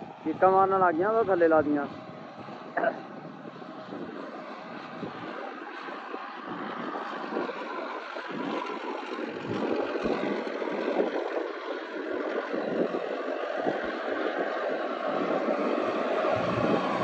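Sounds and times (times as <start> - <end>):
tractor diesel engine under load: 15.6 - 17.0.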